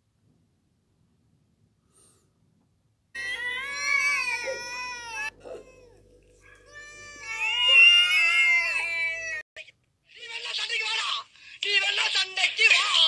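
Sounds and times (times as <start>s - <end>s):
cats yowling: 3.2s - 9.4s.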